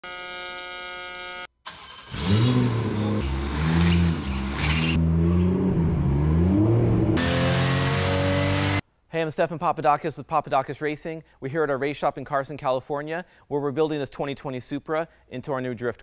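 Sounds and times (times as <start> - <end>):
welding arc buzzing: 0.0 - 1.5
car engine revving: 1.7 - 8.8.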